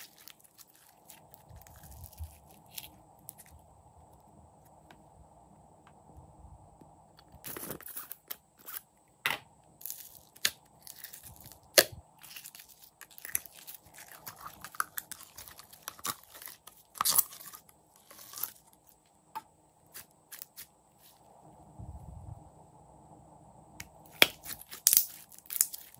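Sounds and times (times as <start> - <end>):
slime squelching: 0.0 - 3.6, 9.8 - 18.9, 23.8 - 25.9.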